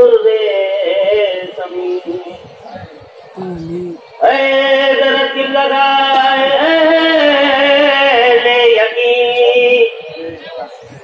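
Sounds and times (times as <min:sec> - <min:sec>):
person singing held notes: 0:03.4 - 0:04.1.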